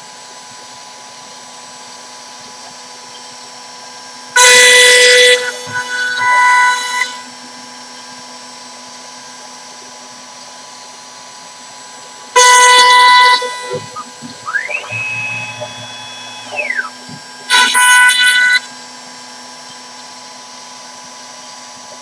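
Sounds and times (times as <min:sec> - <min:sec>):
router spindle whine: 0:00.0 - 0:22.0
shrill scream of bit cutting wood: 0:04.4 - 0:07.4, 0:12.4 - 0:18.8.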